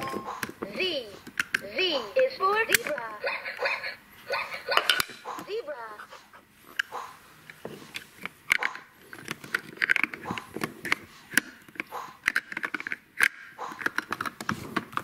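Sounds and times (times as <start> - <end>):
plastic toy pieces clacking: 8.2 - 15.0.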